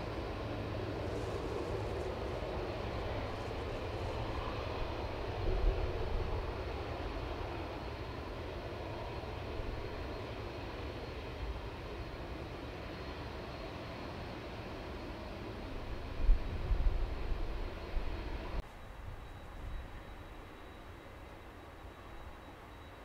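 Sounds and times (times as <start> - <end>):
distant jet engines rumbling: 0.0 - 22.8.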